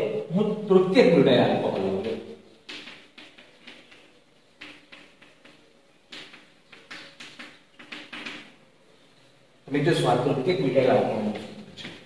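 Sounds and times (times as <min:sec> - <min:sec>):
chalk tapping and scraping blackboard: 0:01.2 - 0:08.6, 0:10.8 - 0:12.0.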